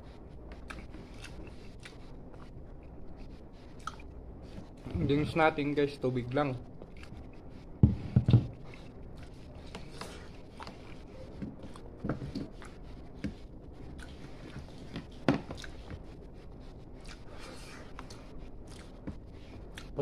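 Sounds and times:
chewing: 0:00.5 - 0:04.9, 0:06.8 - 0:07.4, 0:08.6 - 0:16.0, 0:17.0 - 0:20.0.

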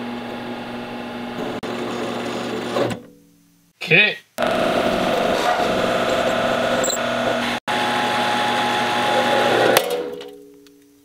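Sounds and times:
lathe cutting steel: 0:04.4 - 0:09.8.

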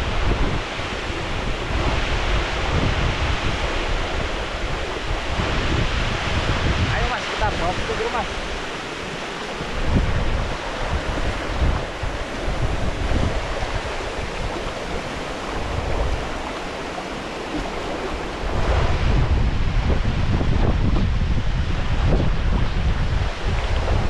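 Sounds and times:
water rushing over a weir: 0:00.0 - 0:24.0
wind buffeting microphone: 0:00.0 - 0:24.0.

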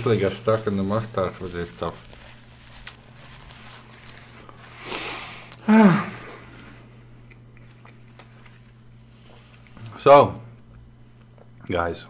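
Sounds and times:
low voiced hum: 0:00.0 - 0:12.0
man breathing through nose: 0:04.8 - 0:05.6.

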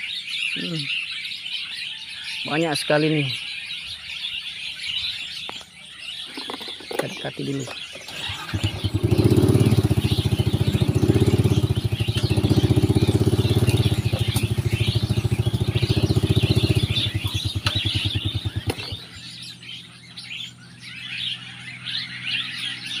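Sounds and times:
small birds chirping: 0:00.0 - 0:23.0
small motorcycle engine running: 0:07.7 - 0:23.0.

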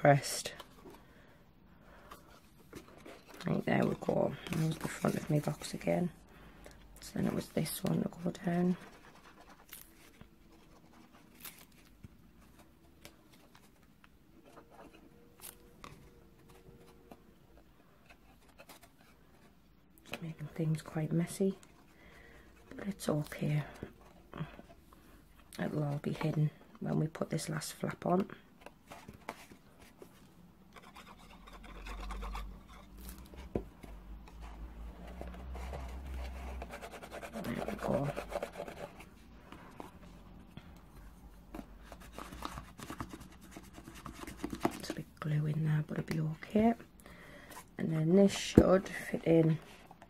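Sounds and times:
cardstock rustling: 0:02.1 - 0:05.9
cardstock rustling and rubbing: 0:02.1 - 0:06.1, 0:07.2 - 0:19.6, 0:28.6 - 0:40.4, 0:41.4 - 0:45.1.

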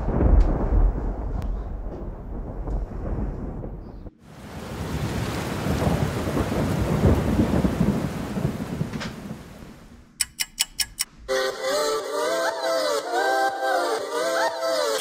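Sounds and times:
rain: 0:00.0 - 0:10.0
thunder rumble: 0:00.0 - 0:10.1
sharp clicks: 0:10.2 - 0:11.1.

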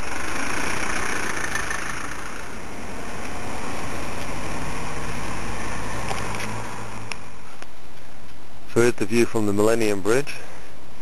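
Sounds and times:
tyres hissing on wet road: 0:00.0 - 0:08.4
car engine hum: 0:00.0 - 0:08.6.

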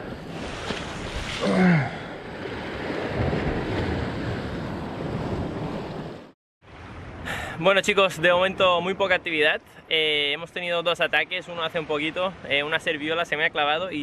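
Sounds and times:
surf washing against rocks: 0:02.2 - 0:06.3
wind buffeting microphone: 0:02.3 - 0:06.3.

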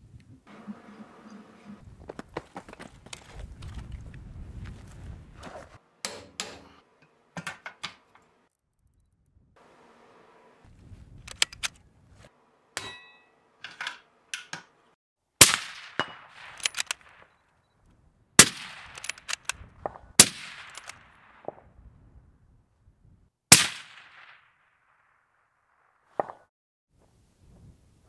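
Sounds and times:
rifle bolt clicks: 0:11.3 - 0:11.8, 0:16.4 - 0:17.2, 0:18.8 - 0:19.6, 0:20.6 - 0:21.0
rifle shots with ringing echo: 0:15.4 - 0:17.3, 0:18.4 - 0:21.7, 0:23.5 - 0:25.2.

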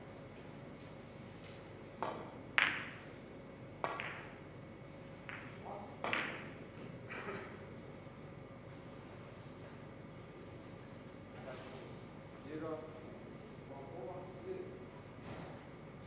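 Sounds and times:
billiard balls clacking: 0:01.5 - 0:03.2, 0:03.8 - 0:04.4, 0:05.2 - 0:07.0.

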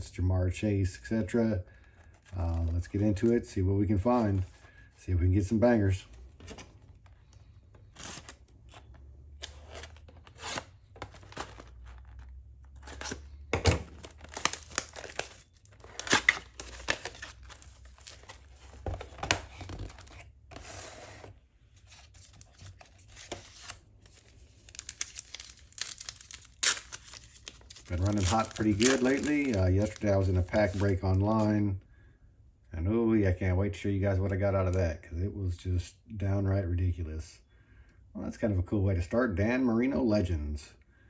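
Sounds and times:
foil packs crinkling: 0:06.8 - 0:20.2, 0:21.9 - 0:31.5
cardboard tearing: 0:09.4 - 0:20.9, 0:21.9 - 0:31.0.

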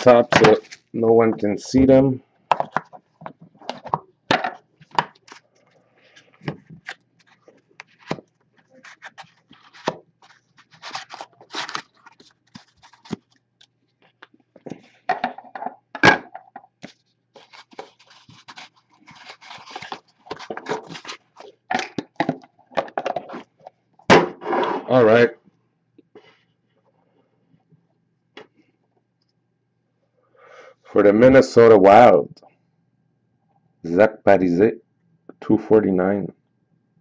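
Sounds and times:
trading cards being handled: 0:04.8 - 0:15.0, 0:16.8 - 0:23.5.

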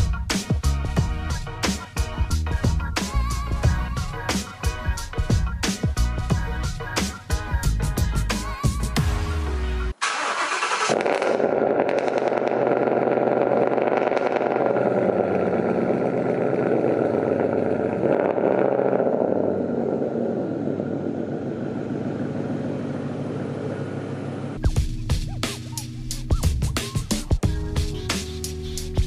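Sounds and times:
background music: 0:00.0 - 0:10.0, 0:24.6 - 0:29.0
car engine starting and running: 0:00.0 - 0:29.0.

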